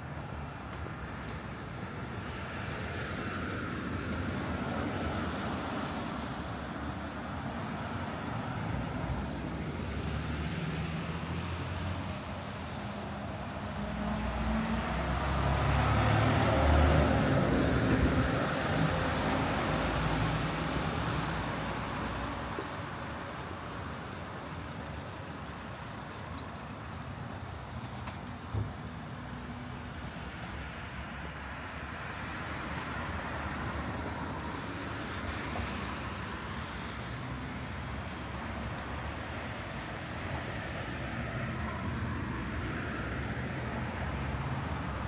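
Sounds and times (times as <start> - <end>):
traffic noise: 0.0 - 45.0
vehicle passing: 8.2 - 22.0.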